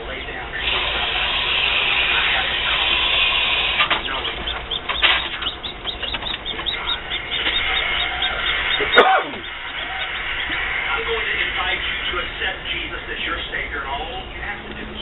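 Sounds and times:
chick peeping: 0:00.6 - 0:12.3.

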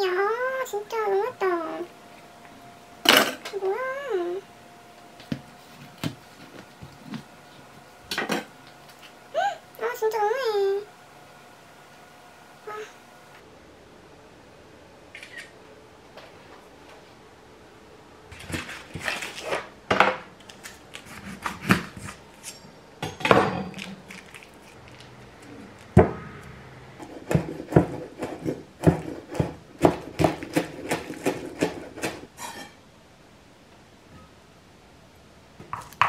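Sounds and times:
knife chopping on wooden board: 0:27.0 - 0:32.3.

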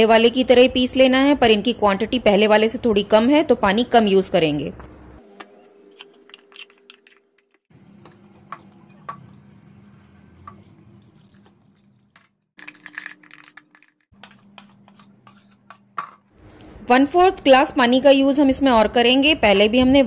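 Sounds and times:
water pouring and sloshing: 0:10.5 - 0:13.4.

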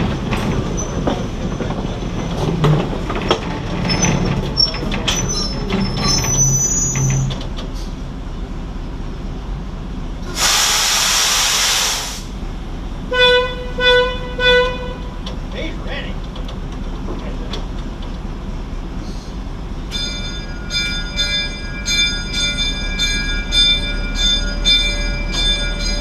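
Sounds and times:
wheels squealing: 0:00.0 - 0:08.0
locomotive rolling on track: 0:00.0 - 0:11.7, 0:14.3 - 0:26.0
loud hiss: 0:10.3 - 0:12.4.

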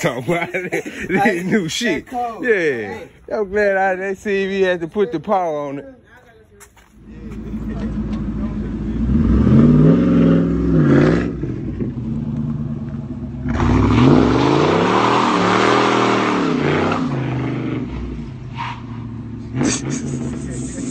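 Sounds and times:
car engine revving: 0:07.0 - 0:20.9.

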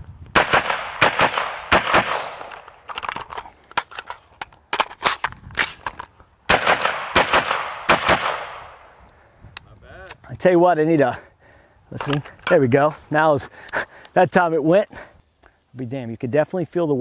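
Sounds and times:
rifle shots with echo: 0:00.4 - 0:02.8, 0:06.5 - 0:08.9.

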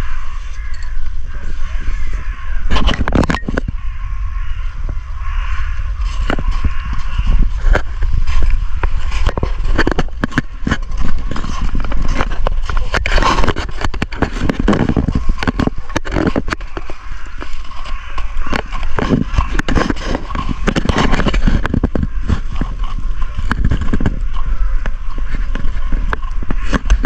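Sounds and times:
low microphone rumble: 0:00.0 - 0:27.0
footsteps crunching in snow: 0:05.3 - 0:27.0.

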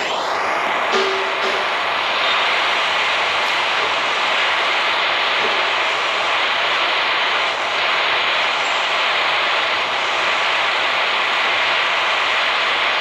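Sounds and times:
gas torch hissing: 0:00.0 - 0:13.0.

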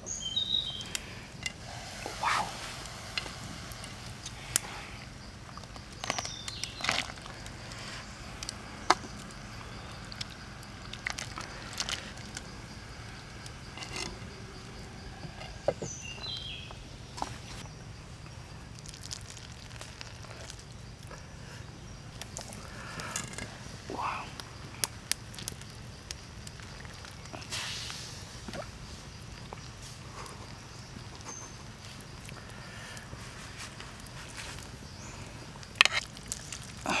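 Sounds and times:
falling chirp: 0:00.0 - 0:01.2.

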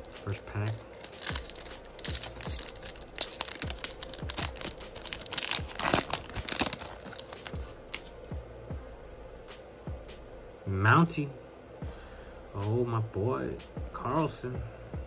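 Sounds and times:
foil wrapper crinkling and tearing: 0:00.0 - 0:08.1
background music with low beat: 0:00.0 - 0:15.0.

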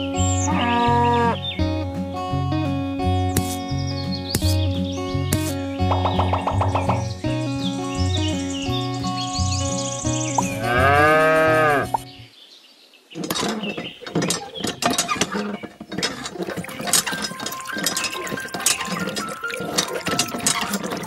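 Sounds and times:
cow mooing: 0:00.4 - 0:01.4, 0:10.5 - 0:12.0
toy hand pump clicking and squeaking: 0:13.2 - 0:21.0.

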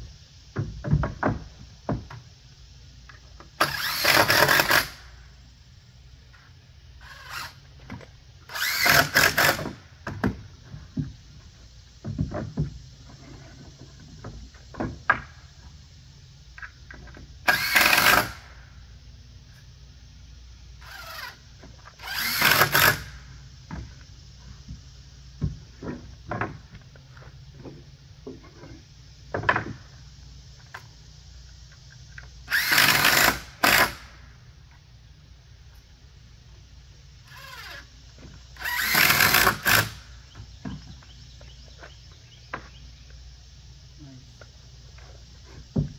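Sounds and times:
cordless drill whirring: 0:03.6 - 0:05.0, 0:07.0 - 0:07.6, 0:08.5 - 0:09.7, 0:22.0 - 0:23.1, 0:32.5 - 0:34.0, 0:38.6 - 0:40.0.

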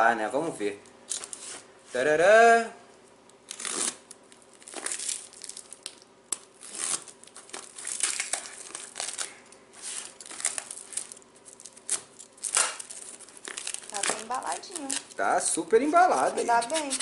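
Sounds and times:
plastic wrap crinkling and tearing: 0:03.4 - 0:17.0.

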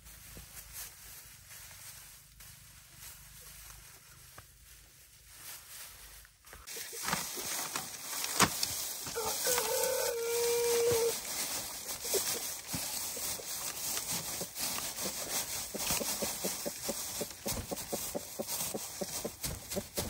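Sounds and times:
held animal call: 0:09.1 - 0:20.0.

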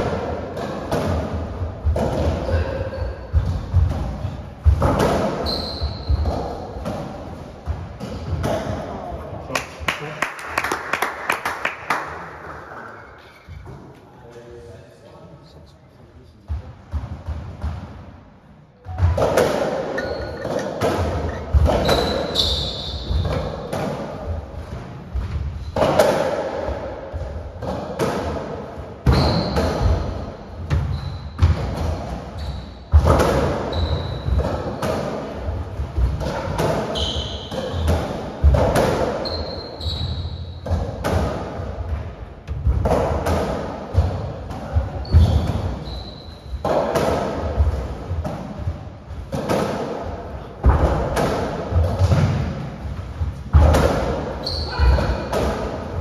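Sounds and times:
ball hitting walls and floor: 0:00.0 - 0:09.1, 0:16.5 - 0:18.2, 0:18.8 - 0:56.0
ball struck by racquets: 0:03.3 - 0:08.9, 0:18.9 - 0:32.2, 0:42.5 - 0:56.0
shoes squeaking on wooden floor: 0:05.4 - 0:06.8, 0:19.9 - 0:23.7, 0:29.1 - 0:30.0, 0:32.3 - 0:34.6, 0:36.9 - 0:38.0, 0:39.2 - 0:40.6, 0:44.9 - 0:46.6, 0:54.4 - 0:55.3.

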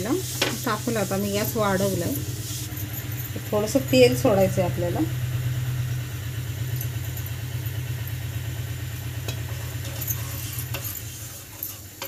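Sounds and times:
low machine hum: 0:00.0 - 0:12.0
wooden spatula scraping pan: 0:09.5 - 0:12.0.

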